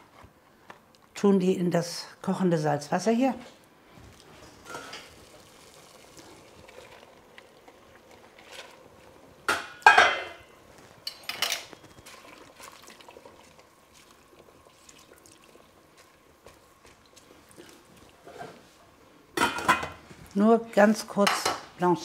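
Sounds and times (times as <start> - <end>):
metal tongs clattering on pot: 11.0 - 12.0.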